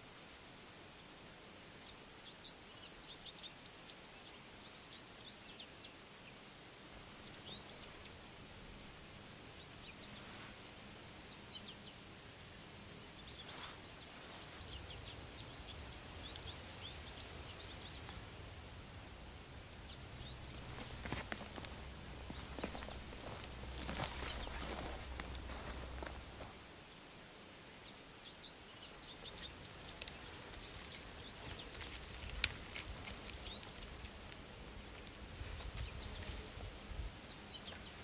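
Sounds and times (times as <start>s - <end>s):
soft steady hiss: 0.0s - 38.0s
small birds chirping: 1.8s - 27.1s, 27.7s - 38.0s
low steady rumble: 7.0s - 26.7s.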